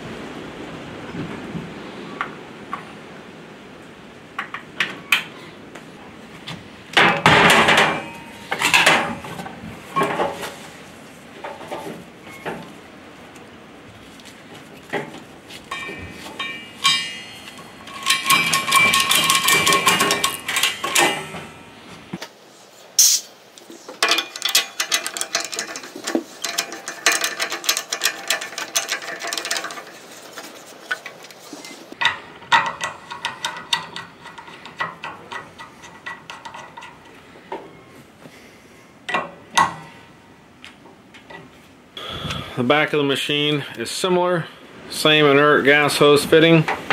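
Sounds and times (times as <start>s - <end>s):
metallic clicking and scraping: 7.0s - 10.6s, 15.7s - 21.8s, 23.0s - 37.8s.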